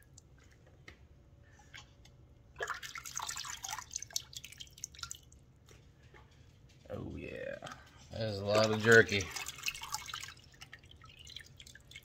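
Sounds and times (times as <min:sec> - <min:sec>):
marinade dripping into metal pot: 0:07.7 - 0:12.0.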